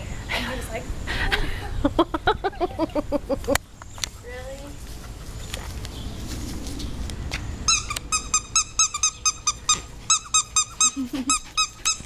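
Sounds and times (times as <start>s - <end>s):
squeaky toy squeaking: 7.7s - 12.0s.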